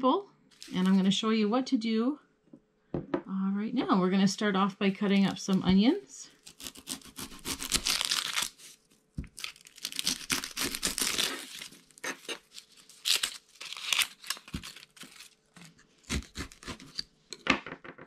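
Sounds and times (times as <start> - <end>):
onion skin crackling and tearing: 6.4 - 17.0.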